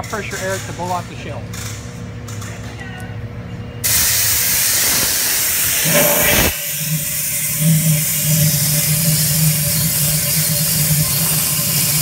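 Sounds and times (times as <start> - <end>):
compressed air hissing: 3.8 - 12.0.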